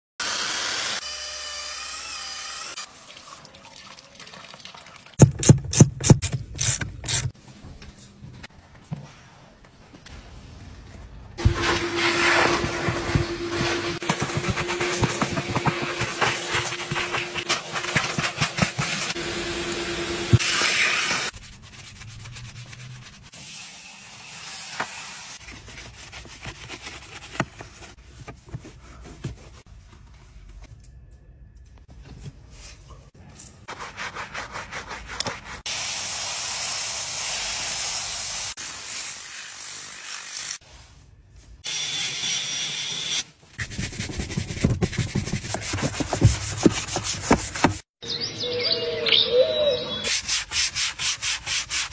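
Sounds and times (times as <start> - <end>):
brush scrubbing plastic: 11.4 - 19.2, 43.6 - 47.9
towel wiping plastic: 11.4 - 19.2, 43.6 - 47.9.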